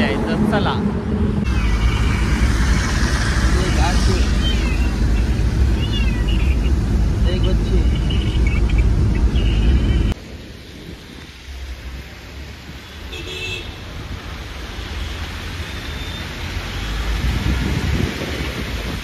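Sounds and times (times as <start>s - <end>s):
distant traffic: 0.0s - 19.0s
vehicle road rumble: 0.0s - 19.0s
rain hiss: 1.3s - 19.0s
car horn toot: 13.1s - 13.8s.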